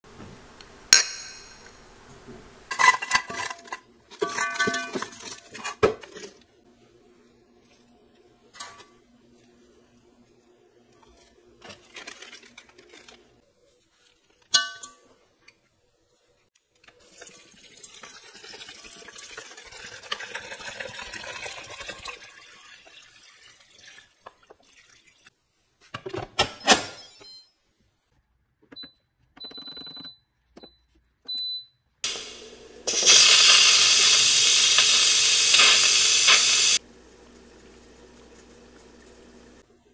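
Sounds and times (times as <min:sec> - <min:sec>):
clatter in a pot: 0:02.7 - 0:06.4
water pouring: 0:16.9 - 0:25.3.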